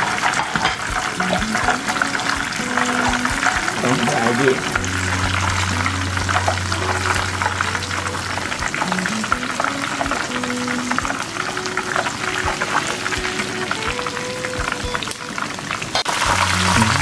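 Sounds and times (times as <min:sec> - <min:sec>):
food deep-frying in oil: 0:00.0 - 0:17.0.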